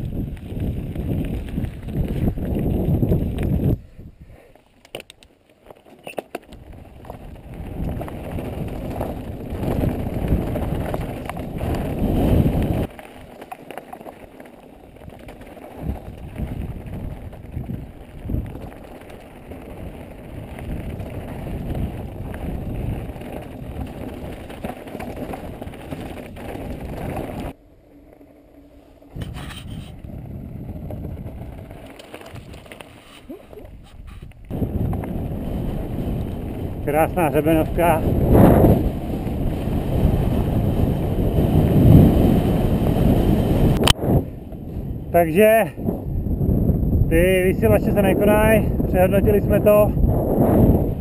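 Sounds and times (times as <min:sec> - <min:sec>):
bike rattling over bumps: 0:00.0 - 0:04.1, 0:04.8 - 0:51.0
wind rumbling on microphone: 0:00.0 - 0:04.5, 0:06.4 - 0:27.6, 0:29.0 - 0:51.0
tyres crunching over stones: 0:04.9 - 0:27.6, 0:30.0 - 0:37.4.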